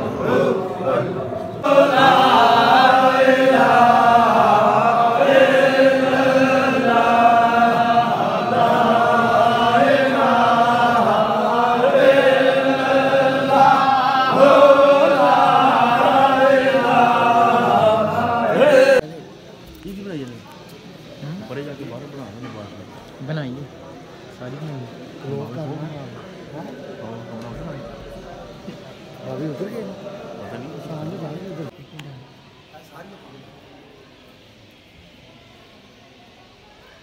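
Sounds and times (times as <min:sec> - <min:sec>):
men chanting in unison: 0:00.0 - 0:19.0.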